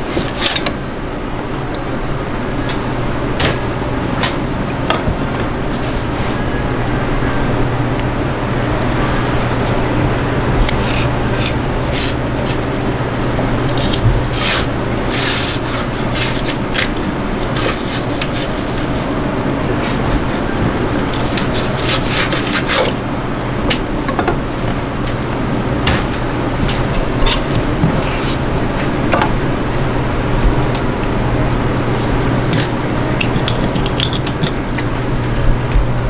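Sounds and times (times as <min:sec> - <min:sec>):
steady low hum: 0:00.0 - 0:36.0
knife scraping fish fillet: 0:09.3 - 0:09.8, 0:10.6 - 0:12.8, 0:13.7 - 0:18.9, 0:21.2 - 0:23.0.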